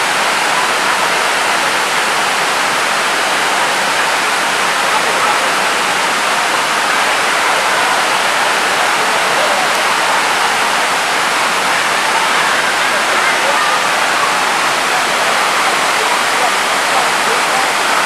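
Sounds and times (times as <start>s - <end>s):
waterfall rushing: 0.0s - 18.0s.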